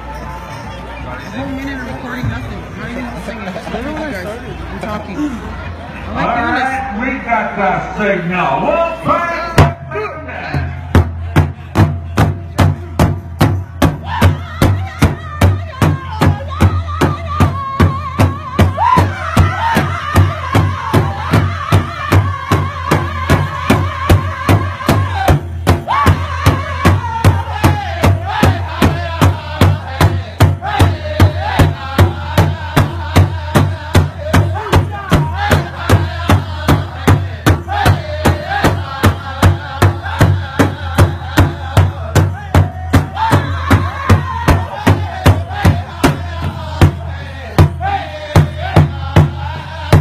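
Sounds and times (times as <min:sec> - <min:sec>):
drum steady beat: 0:09.5 - 0:50.0
voices singing: 0:13.9 - 0:50.0.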